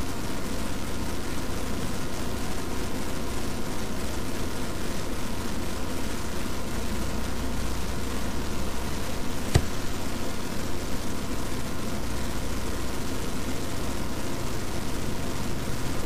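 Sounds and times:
low hum and hiss: 0:00.0 - 0:16.0
sharp click: 0:09.5 - 0:10.0.

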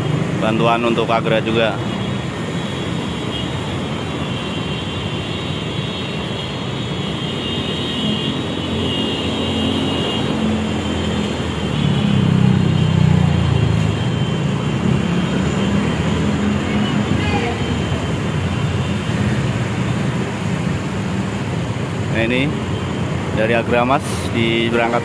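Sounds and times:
road traffic passing: 0:00.0 - 0:25.0
heavy engine: 0:07.9 - 0:25.0.

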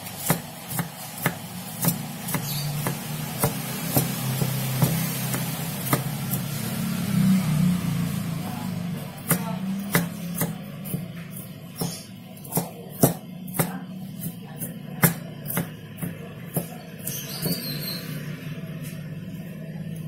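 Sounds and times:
knife chopping on wooden board: 0:00.0 - 0:06.5, 0:09.2 - 0:17.7.

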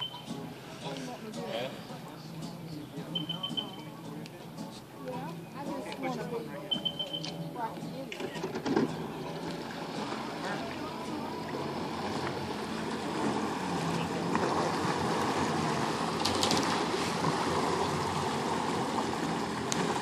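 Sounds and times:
water churning: 0:00.0 - 0:20.0
watercraft engine running: 0:06.3 - 0:20.0.

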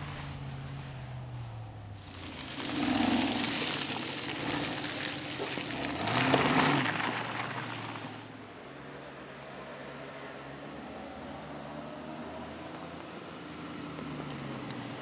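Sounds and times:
car engine revving: 0:00.0 - 0:08.3
tyres and spraying mud hiss: 0:02.0 - 0:08.3.

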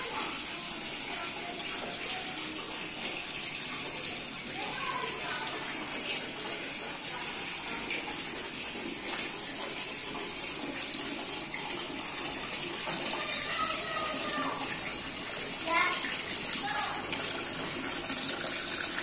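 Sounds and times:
fountain water splashing: 0:04.6 - 0:19.0.

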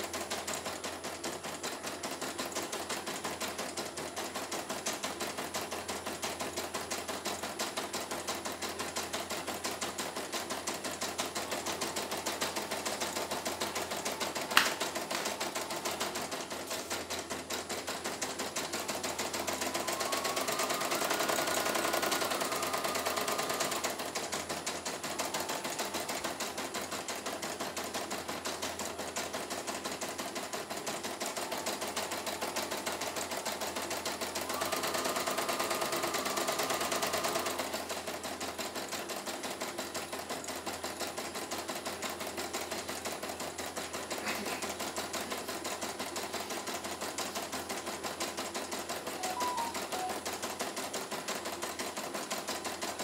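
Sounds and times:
embroidery machine stitching: 0:00.0 - 0:53.0
machine whine: 0:19.4 - 0:23.9.

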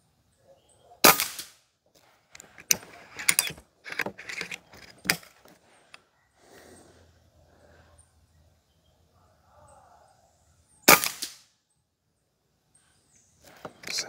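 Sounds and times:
air rifle lever clicking: 0:02.3 - 0:05.4.

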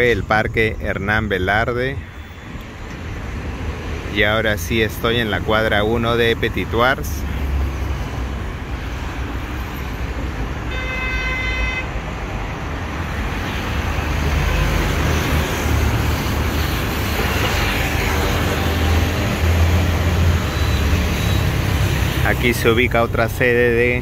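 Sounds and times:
vehicles passing: 0:00.0 - 0:24.0
vehicle horn: 0:10.6 - 0:12.0.

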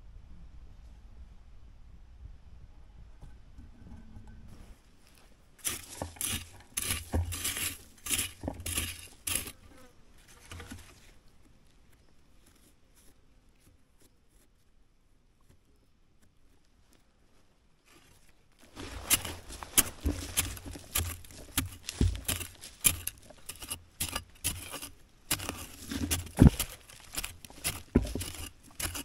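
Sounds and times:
spade striking into soil: 0:05.6 - 0:09.6, 0:18.7 - 0:29.0.

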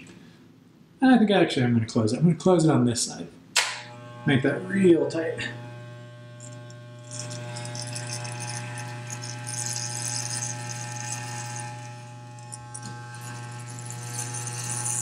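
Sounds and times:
clippers rasping through hair: 0:03.6 - 0:15.0
electric hair clippers buzzing: 0:03.6 - 0:15.0.

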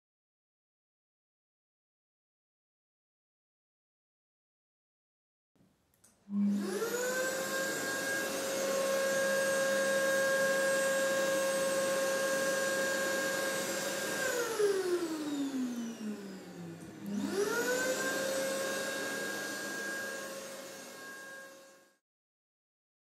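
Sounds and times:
electric blower motor whine: 0:06.3 - 0:22.0.

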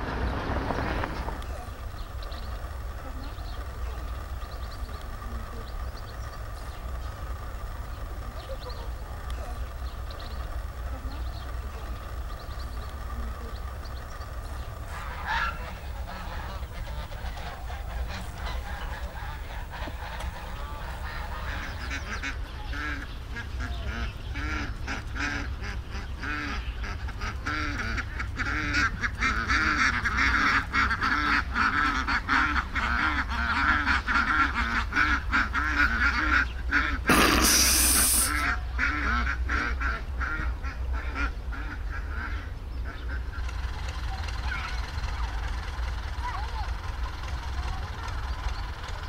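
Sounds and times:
geese honking: 0:00.0 - 0:43.5
rush of noise: 0:37.1 - 0:38.4.

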